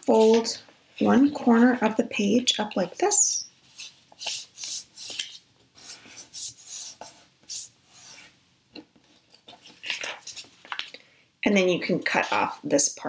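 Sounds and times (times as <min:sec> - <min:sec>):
paper rustling: 0:09.0 - 0:10.9.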